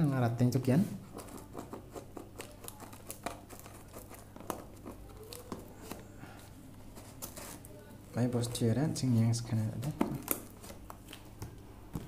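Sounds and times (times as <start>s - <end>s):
packing tape and plastic tearing: 1.2s - 6.1s, 7.0s - 7.8s, 9.8s - 11.5s.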